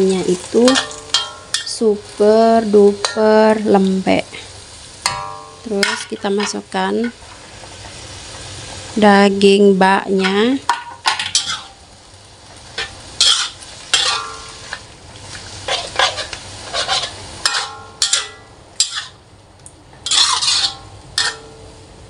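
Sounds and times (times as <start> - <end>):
food sizzling in pan: 0.0 - 22.0
metal spatula scraping wok: 10.1 - 11.8, 12.6 - 19.2, 20.0 - 21.8.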